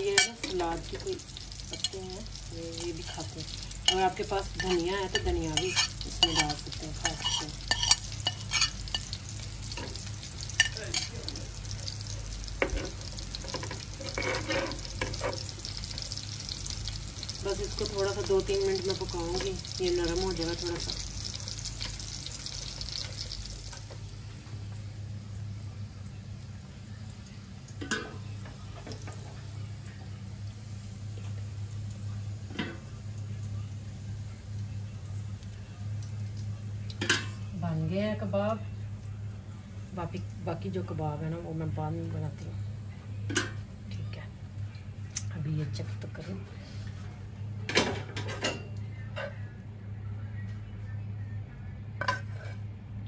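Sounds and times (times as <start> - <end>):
onion sizzling in a pan: 0.0 - 46.2
steady low hum: 0.0 - 53.0
spoon scraping and knocking pan: 3.8 - 11.2, 12.6 - 15.5.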